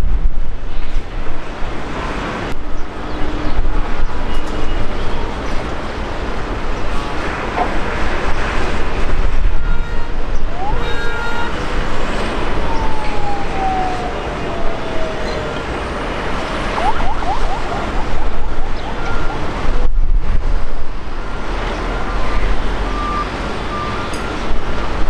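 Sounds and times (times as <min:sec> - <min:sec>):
road traffic rumbling: 0:00.0 - 0:25.0
car horn: 0:09.4 - 0:12.5
siren-like tone sliding downward: 0:10.4 - 0:19.6.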